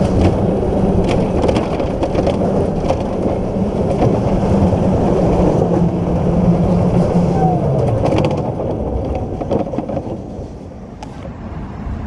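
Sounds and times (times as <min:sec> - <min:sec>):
rattling clicks: 0:00.0 - 0:06.2, 0:07.7 - 0:10.4
sled rumbling down metal trough: 0:00.0 - 0:10.8.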